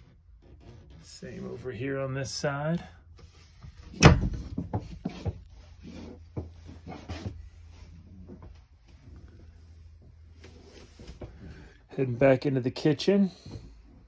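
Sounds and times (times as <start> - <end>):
closet door shutting: 3.9 - 4.6.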